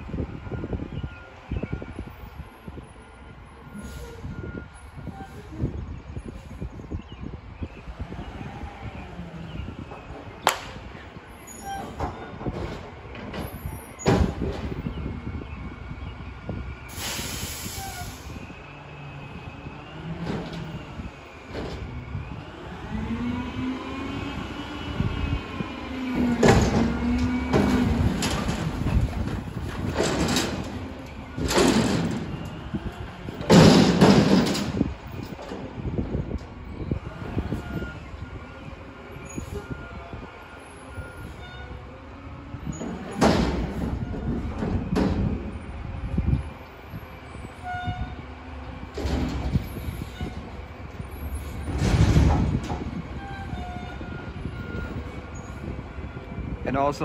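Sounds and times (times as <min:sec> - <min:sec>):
truck engine rumbling: 0:00.0 - 0:57.0
garbage truck engine running: 0:24.0 - 0:41.4
metal bangs: 0:26.1 - 0:35.6
clattering impact: 0:33.3 - 0:35.7
bin contents crashing into truck: 0:33.5 - 0:34.8.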